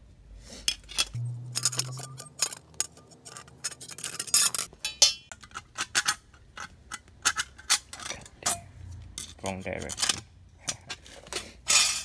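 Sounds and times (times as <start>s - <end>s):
ringing metal scrape: 1.1s - 5.3s.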